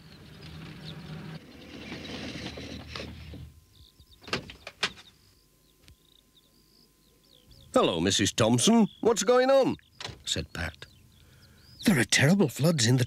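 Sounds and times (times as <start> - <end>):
van engine running: 0.0 - 3.9.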